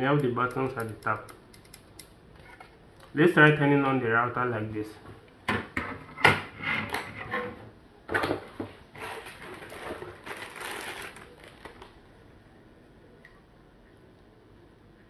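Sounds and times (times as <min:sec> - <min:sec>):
plastic bag crinkling: 0:08.9 - 0:12.1.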